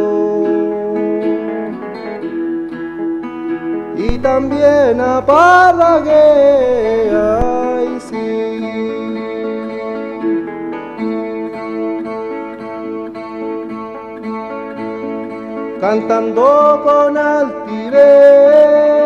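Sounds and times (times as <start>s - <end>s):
guitar plucked chords: 0.0s - 19.0s
man singing wavering note: 3.9s - 9.4s.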